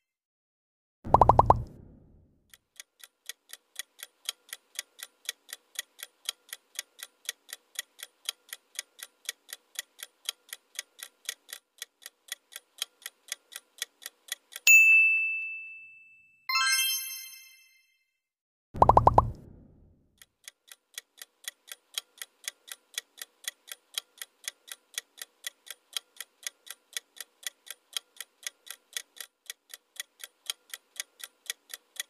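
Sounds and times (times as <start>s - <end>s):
clock ticking: 2.5s - 14.6s, 20.2s - 32.0s
bell-like ding: 14.7s - 17.9s
bright multi-tone chime: 14.7s - 18.0s.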